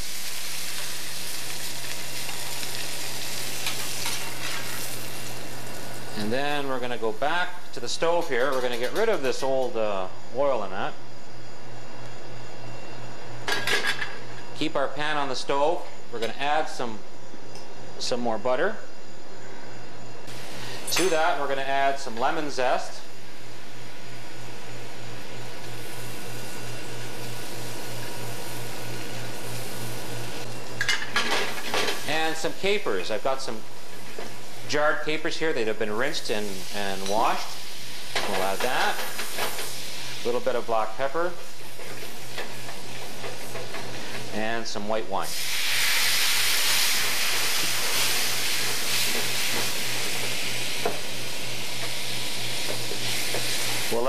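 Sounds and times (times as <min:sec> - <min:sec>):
butter sizzling in a frying pan: 0:00.0 - 0:06.3, 0:23.4 - 0:44.5, 0:45.3 - 0:54.0.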